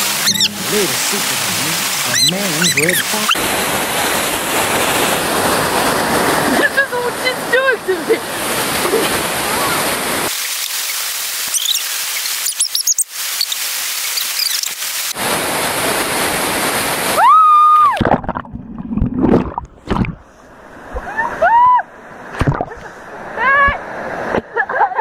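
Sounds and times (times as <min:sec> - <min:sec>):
waterfall rushing: 0:00.0 - 0:17.2.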